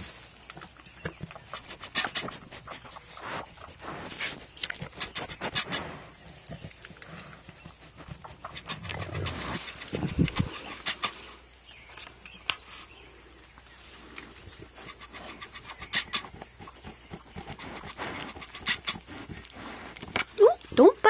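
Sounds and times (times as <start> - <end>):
goat kids sucking and smacking: 0.0 - 20.8
goat kids breathing: 1.4 - 11.5, 12.6 - 20.2
straw rustling: 8.8 - 15.4.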